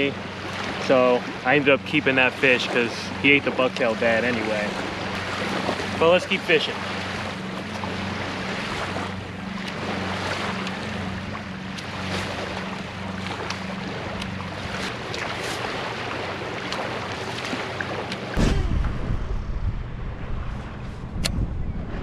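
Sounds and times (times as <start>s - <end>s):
small waves lapping on shore: 0.0s - 18.4s
steady low hum: 0.0s - 22.0s
wind buffeting microphone: 18.4s - 22.0s.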